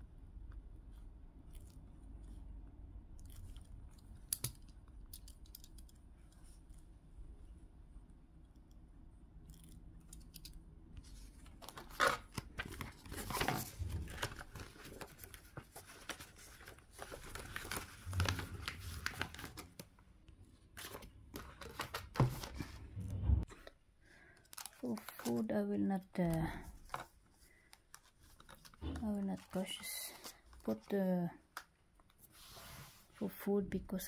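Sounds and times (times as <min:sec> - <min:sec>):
paper rustling and crinkling: 0:11.0 - 0:20.0, 0:20.7 - 0:23.0, 0:24.4 - 0:25.5, 0:26.6 - 0:31.0.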